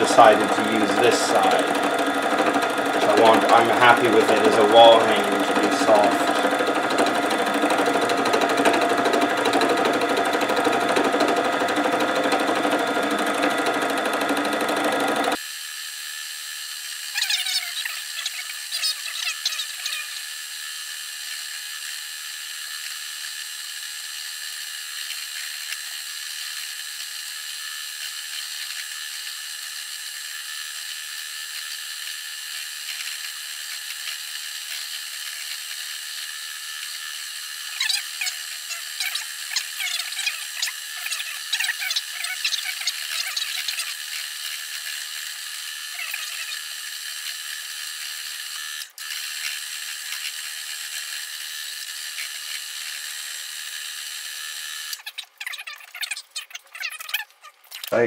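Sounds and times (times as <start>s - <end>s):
felting machine motor whir: 0.0s - 58.0s.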